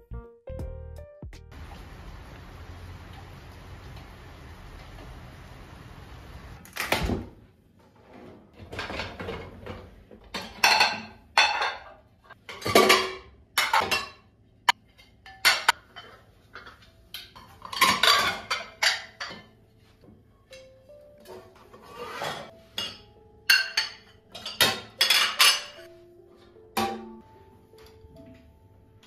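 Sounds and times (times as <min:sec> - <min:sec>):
ceramic plates clattering: 0:08.6 - 0:19.6, 0:21.3 - 0:25.9
cutlery and glass clinking: 0:10.3 - 0:19.6, 0:20.4 - 0:25.9.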